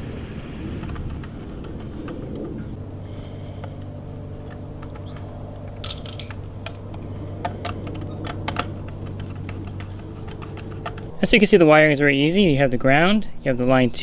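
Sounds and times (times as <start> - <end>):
steady low hum: 0.0 - 14.0
tools clicking on metal screws: 4.4 - 11.1.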